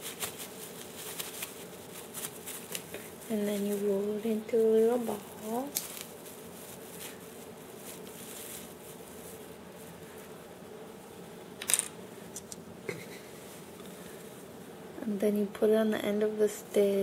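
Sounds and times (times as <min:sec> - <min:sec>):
sharp rustle: 0:00.0 - 0:10.4
faint steady hum: 0:00.0 - 0:17.0.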